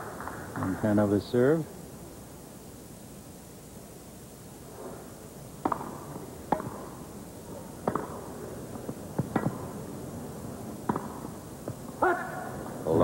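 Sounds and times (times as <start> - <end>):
racket hitting tennis ball: 5.6 - 7.0, 7.8 - 9.8, 10.8 - 11.8.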